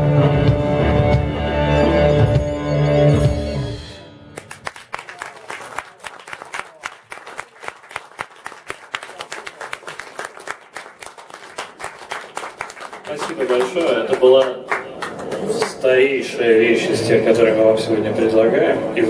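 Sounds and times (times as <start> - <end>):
audience applauding: 4.4 - 16.1.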